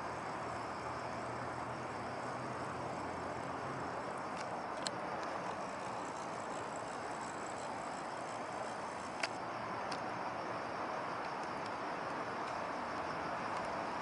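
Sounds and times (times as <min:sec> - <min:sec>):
small clicks: 0:04.2 - 0:10.1, 0:13.5 - 0:13.8.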